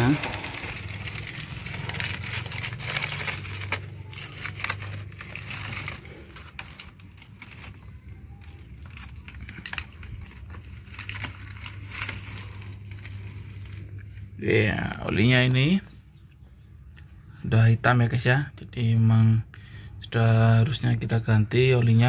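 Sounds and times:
plastic scraping on concrete: 0.0s - 14.4s
low steady hum: 0.0s - 22.0s.

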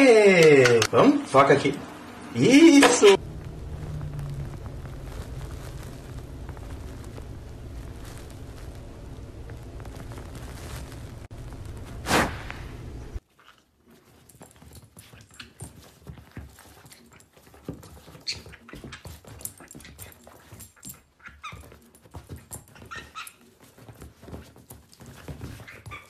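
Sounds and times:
paws scuffling on leather: 13.8s - 26.0s.

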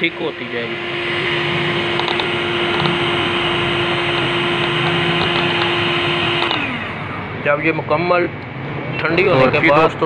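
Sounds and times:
electric mixer running: 0.0s - 7.5s.

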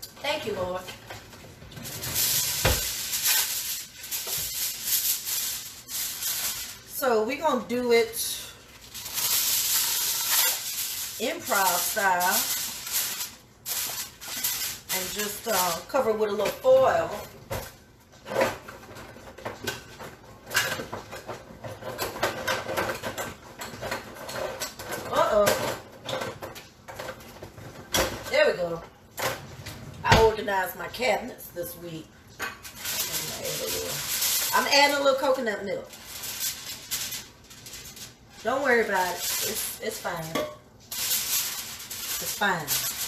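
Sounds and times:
aluminium foil crinkling: 0.3s - 28.2s, 32.1s - 43.0s
packages rustling and clicking: 8.7s - 16.0s, 32.6s - 39.8s, 40.9s - 43.0s.

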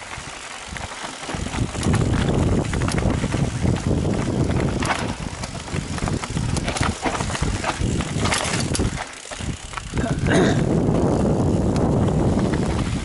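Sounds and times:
bike tyres on dirt trail: 0.0s - 13.0s
wind on microphone: 0.7s - 13.0s
chain and frame rattling: 4.6s - 10.6s.

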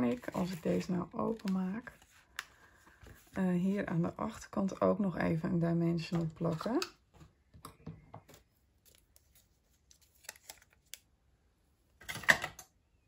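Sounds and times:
paper rustling: 0.0s - 3.9s, 8.2s - 11.0s.

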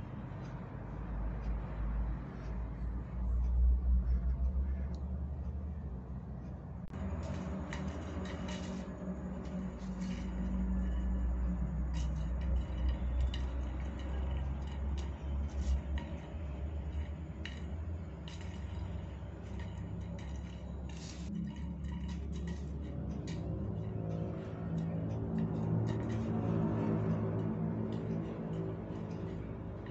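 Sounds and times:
steady low hum: 0.0s - 29.9s
straw and paws tapping on tile: 6.9s - 29.9s.

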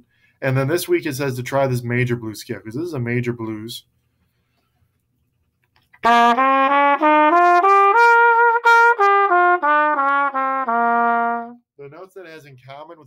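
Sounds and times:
trumpet playing a scale: 6.0s - 11.7s.

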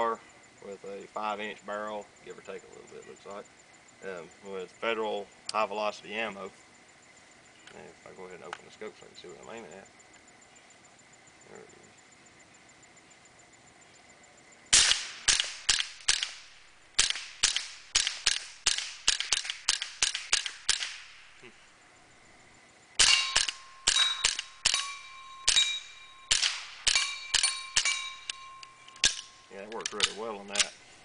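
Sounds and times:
suppressed rifle shots: 14.7s - 21.4s, 23.0s - 30.8s
steel targets ringing: 23.0s - 30.6s.

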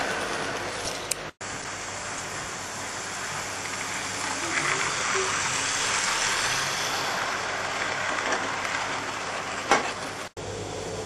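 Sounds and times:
model train wheels on rail: 0.0s - 10.9s.

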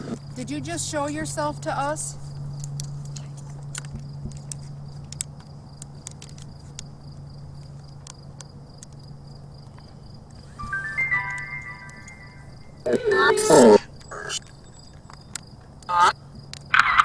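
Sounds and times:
crickets trilling: 0.0s - 10.6s, 12.3s - 16.8s
low steady hum: 0.0s - 16.4s
steady electronic tones: 10.5s - 14.3s.

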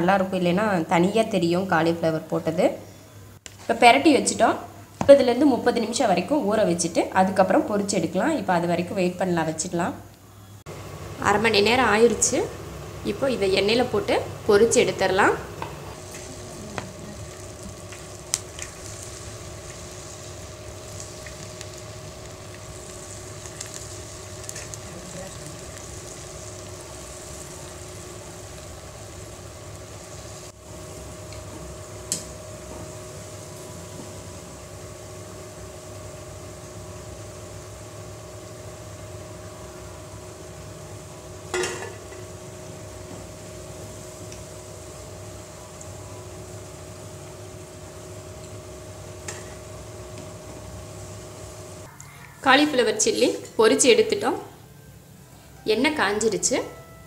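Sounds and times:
batter frying in hot oil: 10.7s - 54.4s.

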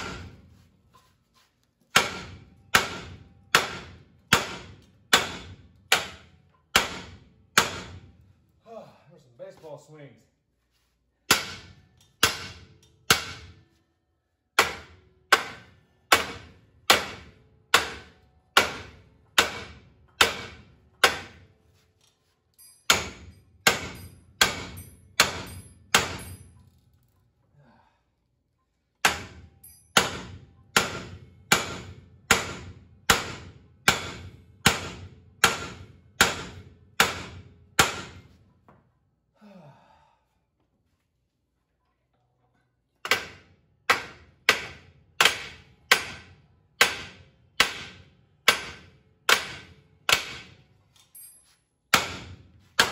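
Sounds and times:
sledgehammer striking steel: 0.0s - 0.5s, 1.9s - 8.2s, 11.3s - 13.6s, 14.6s - 21.5s, 22.6s - 26.6s, 29.0s - 38.4s, 43.0s - 50.6s, 51.9s - 52.9s.

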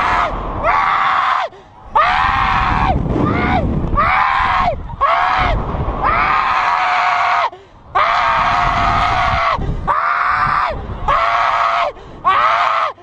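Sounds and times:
man gasping: 7.5s - 7.8s.

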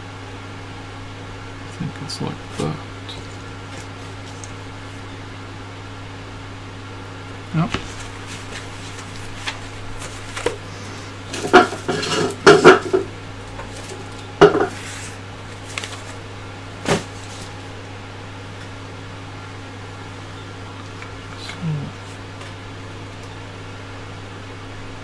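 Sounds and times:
steady low hum: 0.0s - 25.0s
handling clatters and rustles: 2.6s - 4.7s, 7.7s - 17.7s.

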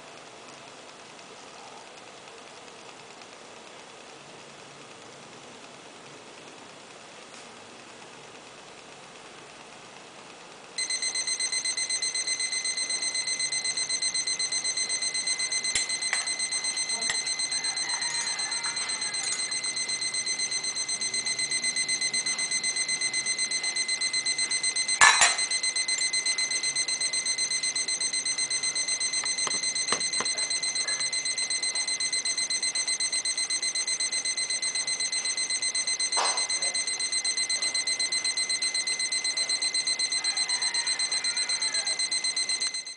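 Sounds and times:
thermometer alarm beeping rapidly: 10.8s - 42.9s.

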